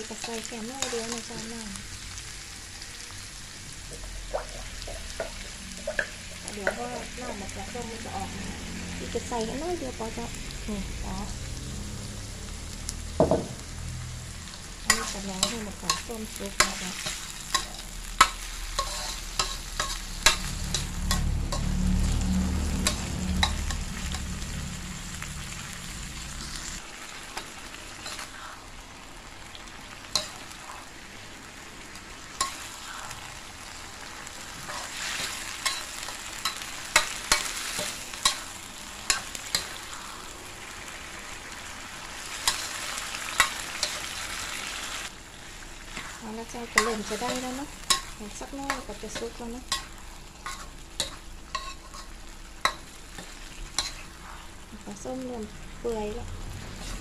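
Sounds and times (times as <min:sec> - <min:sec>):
food sizzling in a wok: 0:00.0 - 0:57.0
low rumble: 0:03.7 - 0:16.8, 0:19.2 - 0:26.8, 0:55.4 - 0:57.0
metal spatula scraping a pan: 0:14.5 - 0:22.2, 0:28.0 - 0:28.6, 0:34.5 - 0:40.2, 0:45.9 - 0:54.6, 0:56.7 - 0:57.0.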